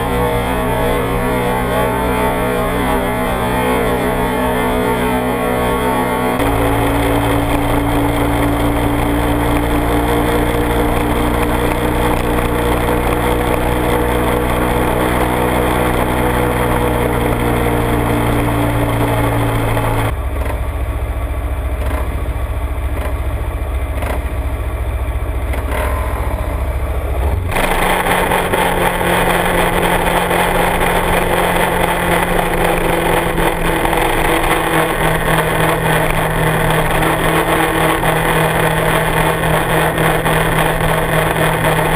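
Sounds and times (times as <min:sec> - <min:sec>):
motorcycle engine running: 0:00.0 - 0:41.9
motorcycle engine idling: 0:16.9 - 0:41.9.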